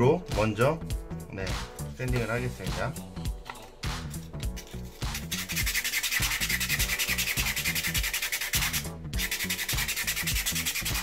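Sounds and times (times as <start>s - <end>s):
sandpaper rasping on plastic: 4.6s - 11.0s.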